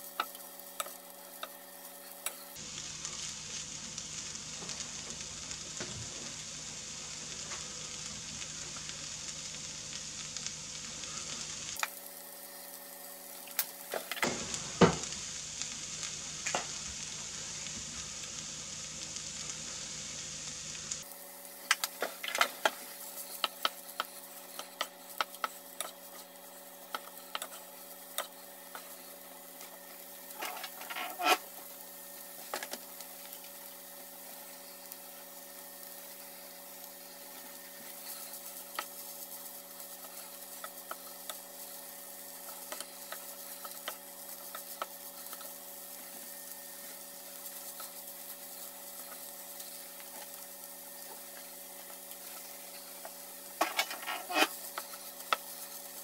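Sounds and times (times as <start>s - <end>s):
fried rice sizzling in a pan: 0.0s - 56.0s
wooden spatula scraping a pan: 22.0s - 31.5s, 51.0s - 56.0s.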